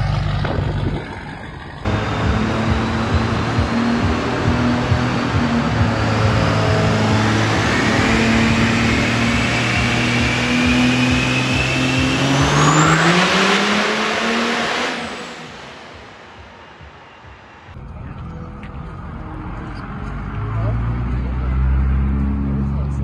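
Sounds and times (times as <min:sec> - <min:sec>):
truck engine running hard: 0:00.0 - 0:23.0
high whistle: 0:07.7 - 0:14.0.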